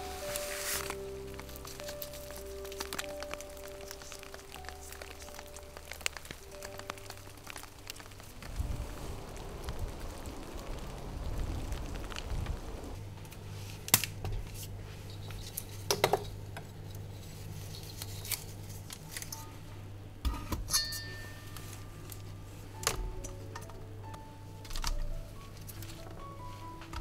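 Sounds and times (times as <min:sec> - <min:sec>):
steady low hum: 0:00.0 - 0:26.0
soft rushing noise: 0:06.3 - 0:13.0.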